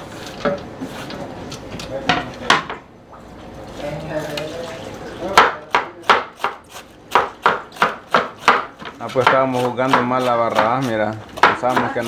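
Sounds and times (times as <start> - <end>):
knife slicing cabbage on board: 5.8 - 12.0.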